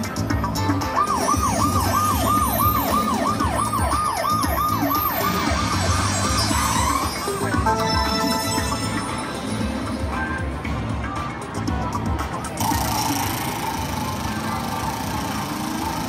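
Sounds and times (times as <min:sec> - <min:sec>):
slot machine warbling siren tone: 0:00.7 - 0:09.6.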